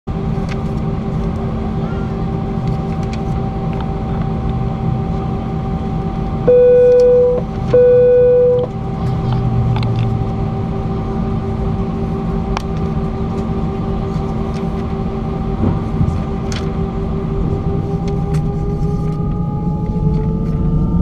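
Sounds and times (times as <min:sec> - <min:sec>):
aircraft engine hum in cabin: 0:00.1 - 0:21.0
loud buzzing tones: 0:06.5 - 0:08.7.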